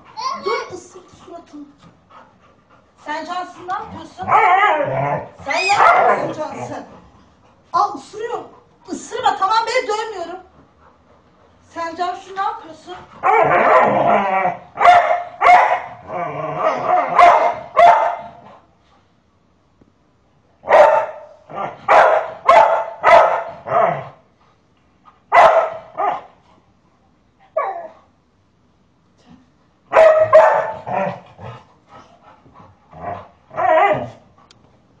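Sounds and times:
dog barking: 0:05.6 - 0:06.4, 0:13.2 - 0:14.0, 0:14.8 - 0:16.0, 0:16.7 - 0:18.4, 0:20.6 - 0:23.9, 0:25.3 - 0:26.3, 0:29.9 - 0:31.0.

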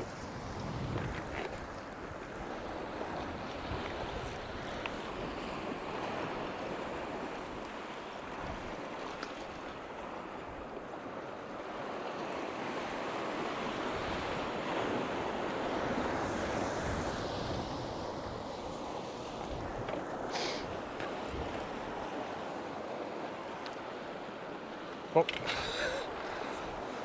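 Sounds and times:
wind buffeting microphone: 0:00.0 - 0:07.3
sea waves breaking on rocks: 0:00.0 - 0:27.0.

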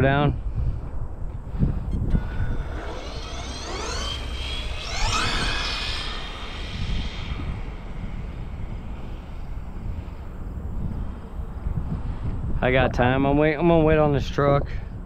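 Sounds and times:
low rumble: 0:00.7 - 0:12.8
electric motor whining: 0:01.4 - 0:12.4.

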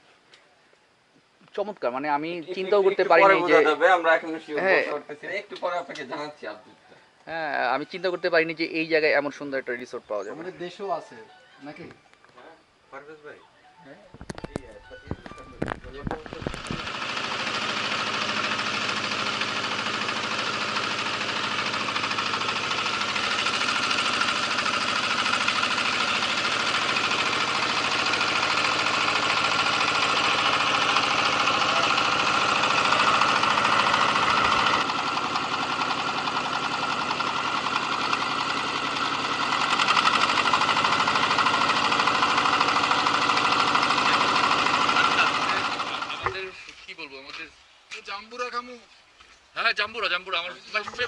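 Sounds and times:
boat engine running: 0:14.3 - 0:46.5.

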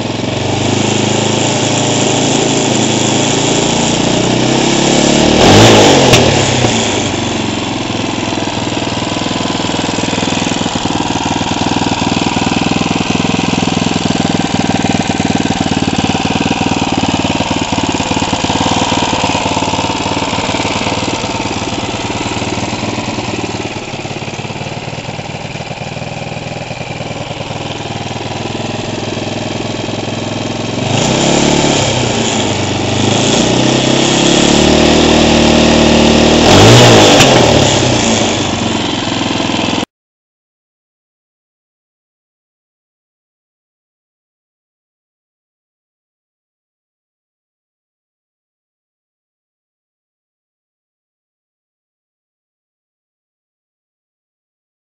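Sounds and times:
kart engine idling and revving: 0:00.0 - 0:39.9.

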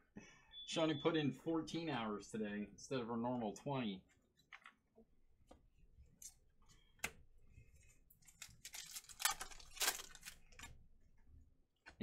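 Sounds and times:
foil wrapper tearing open: 0:08.3 - 0:10.7.

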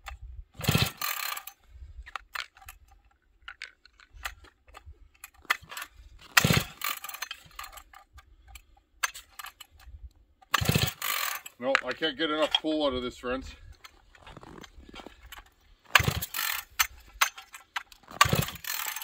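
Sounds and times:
small clicks and rattles: 0:00.0 - 0:12.6, 0:13.8 - 0:19.0
chainsaw recoil starter pulls: 0:00.0 - 0:12.7, 0:13.6 - 0:19.0
engine turning over: 0:00.6 - 0:01.5, 0:05.4 - 0:07.8, 0:10.5 - 0:11.6, 0:14.4 - 0:19.0.

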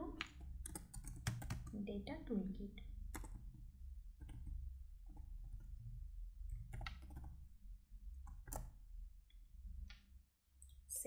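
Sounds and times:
low steady hum: 0:00.0 - 0:11.0
keyboard keys clicking: 0:00.2 - 0:01.8, 0:03.1 - 0:03.4, 0:04.2 - 0:05.8, 0:06.5 - 0:07.4, 0:08.2 - 0:08.8.

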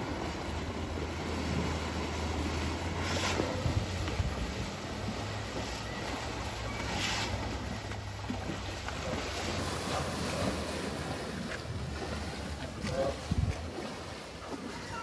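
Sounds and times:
wind rumbling on microphone: 0:00.0 - 0:06.5, 0:07.4 - 0:14.0
elephants splashing in water: 0:00.0 - 0:15.0.

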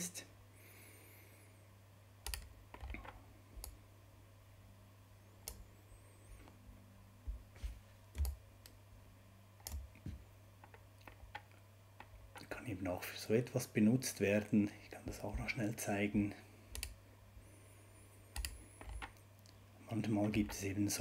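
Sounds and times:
keyboard and mouse clicks: 0:02.2 - 0:03.8, 0:08.2 - 0:08.8, 0:09.6 - 0:10.0, 0:16.7 - 0:17.0, 0:18.3 - 0:19.6.

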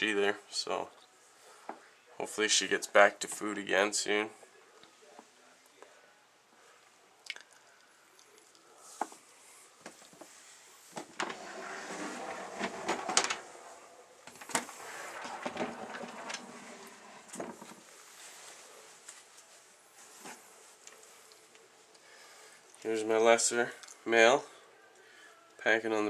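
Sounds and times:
plastic tubs scraping on shelves: 0:10.9 - 0:17.9.

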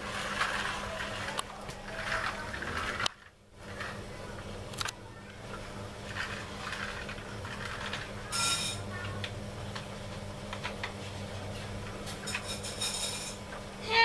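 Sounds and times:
plastic toy trucks clicking and rattling: 0:00.1 - 0:04.0, 0:06.0 - 0:09.3.

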